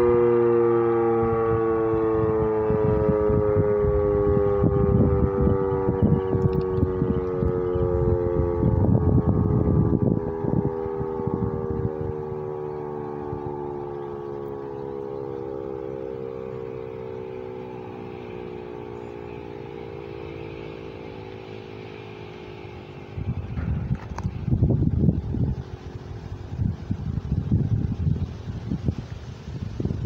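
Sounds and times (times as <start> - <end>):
warning siren winding down: 0.0 - 29.3.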